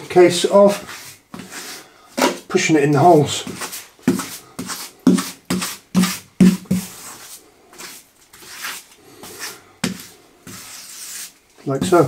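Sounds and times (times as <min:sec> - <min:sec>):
tool scraping tiles: 0:03.4 - 0:12.0.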